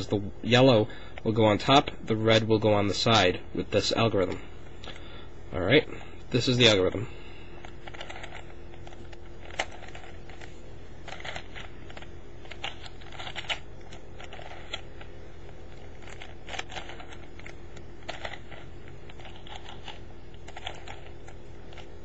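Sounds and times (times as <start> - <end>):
puzzle cube layers clicking: 7.8 - 15.1, 15.7 - 21.9.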